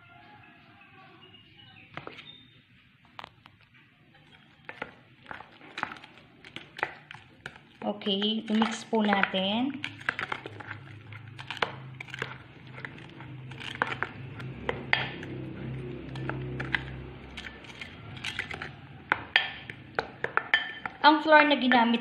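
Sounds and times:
spoon tapping glass bowl: 0:16.0 - 0:21.0.

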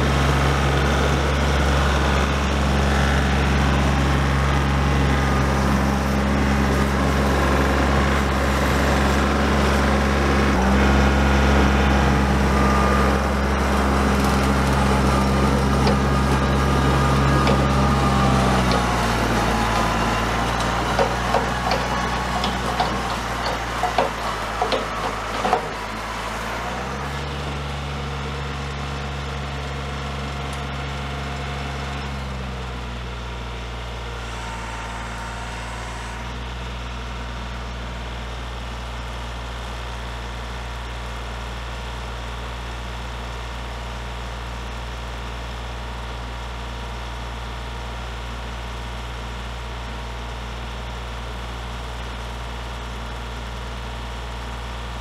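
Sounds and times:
distant diesel tractor engine: 0:00.0 - 0:55.0
sharp knocks: 0:20.9 - 0:25.8.

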